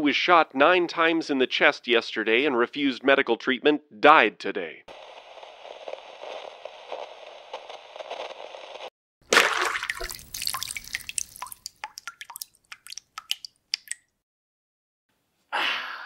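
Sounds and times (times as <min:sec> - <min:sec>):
loud liquid splash: 0:09.3 - 0:14.0
water dripping: 0:09.3 - 0:14.2.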